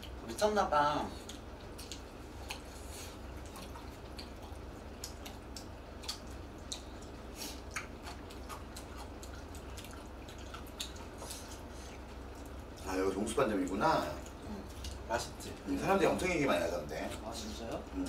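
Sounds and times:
steady low hum: 0:00.0 - 0:18.0
wet mouth clicks and smacks: 0:03.4 - 0:11.2.

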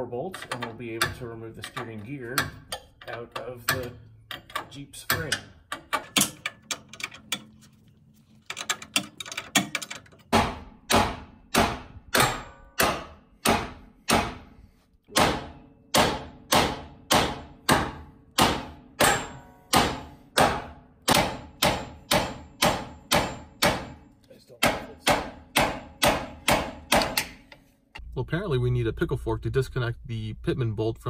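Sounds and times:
hammer striking steel: 0:00.4 - 0:06.5, 0:09.6 - 0:14.5, 0:15.1 - 0:27.6.

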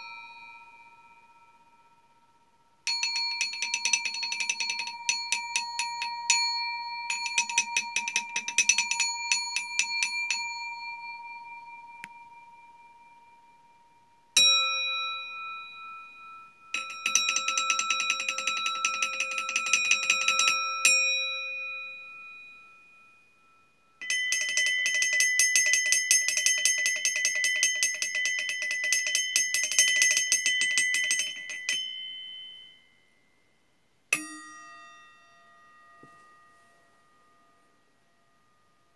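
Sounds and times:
metal bowl ringing tones: 0:00.0 - 0:38.9
metal bowl strike: 0:34.2 - 0:36.5.

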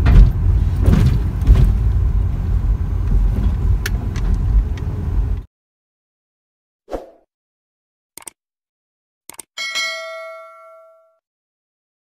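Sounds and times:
car engine and road rumble: 0:00.0 - 0:05.5.

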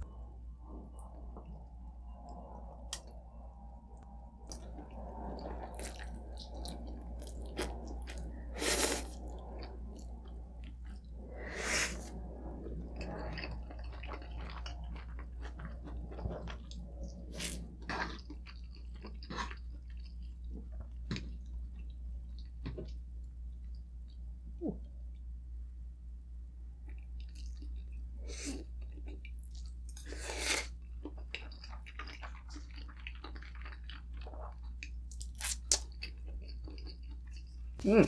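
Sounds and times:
low hum: 0:00.0 - 0:28.8
person chewing food: 0:04.5 - 0:23.0, 0:26.8 - 0:37.9.

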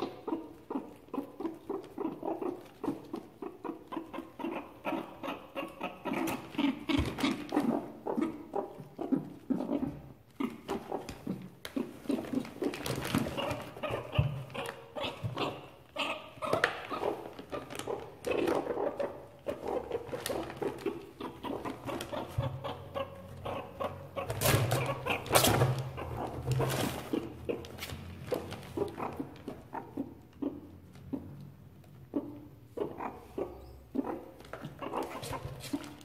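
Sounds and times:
meerkats calling: 0:00.0 - 0:36.0
plastic bag rustling: 0:16.9 - 0:18.7.

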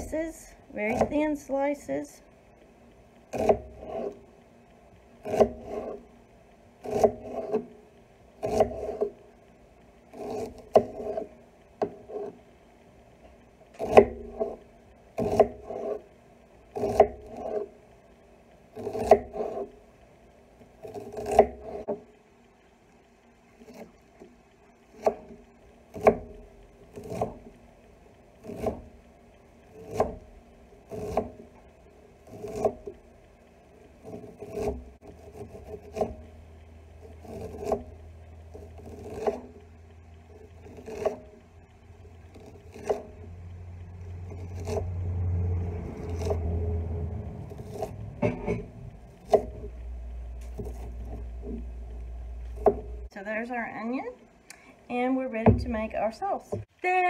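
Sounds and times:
knife chopping on wooden board: 0:03.3 - 0:04.2, 0:05.2 - 0:06.0, 0:06.8 - 0:07.7, 0:08.4 - 0:09.1, 0:10.2 - 0:12.3, 0:13.8 - 0:14.6, 0:15.2 - 0:16.0, 0:16.8 - 0:17.6, 0:18.8 - 0:19.7, 0:20.8 - 0:22.0, 0:25.0 - 0:27.4, 0:28.4 - 0:28.9, 0:29.7 - 0:30.3, 0:30.9 - 0:31.4, 0:32.3 - 0:32.9, 0:34.0 - 0:36.2, 0:37.2 - 0:37.8, 0:38.6 - 0:39.5, 0:40.7 - 0:41.2, 0:42.4 - 0:43.1, 0:47.5 - 0:49.7, 0:50.4 - 0:51.6, 0:52.5 - 0:53.0.

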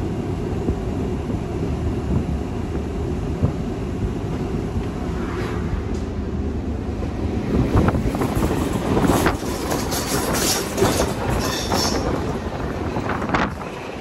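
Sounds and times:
train wheels rumbling on rails: 0:00.0 - 0:14.0
clickety-clack over rail joints: 0:07.0 - 0:14.0.

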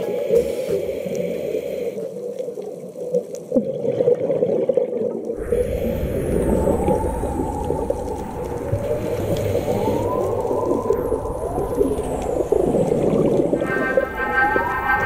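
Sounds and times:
muffled underwater rush: 0:02.7 - 0:15.0
deep underwater rumble: 0:05.3 - 0:15.0
faint crackling: 0:05.4 - 0:15.0.

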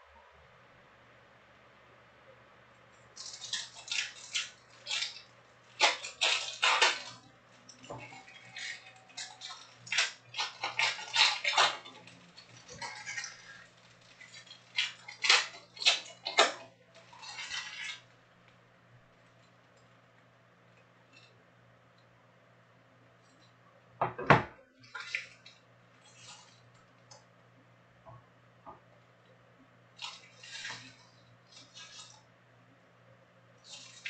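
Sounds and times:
faint low hum: 0:00.0 - 0:34.0
foil wrappers crinkling and tearing: 0:03.2 - 0:18.2, 0:30.0 - 0:32.2, 0:33.6 - 0:34.0.

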